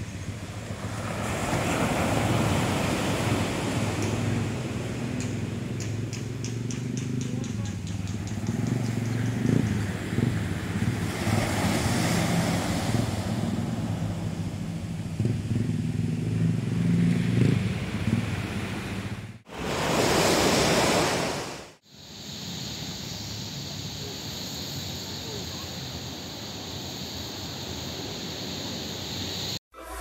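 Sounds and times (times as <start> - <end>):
surf washing onto beach: 0.0 - 5.2, 9.8 - 14.3, 19.5 - 21.8.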